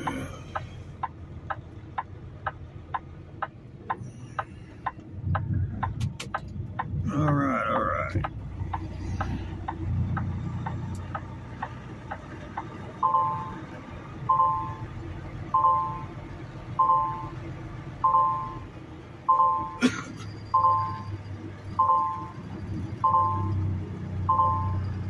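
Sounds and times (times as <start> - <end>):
diesel truck engine idling: 0.0 - 25.0
two-tone reverse warning beep: 13.0 - 13.6, 14.2 - 14.8, 15.5 - 16.1, 16.8 - 17.4, 18.0 - 18.7, 19.3 - 25.0.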